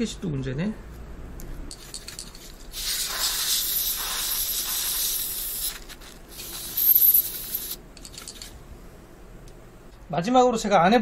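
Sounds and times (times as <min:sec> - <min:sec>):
aerosol spray can hissing: 0:02.7 - 0:07.8.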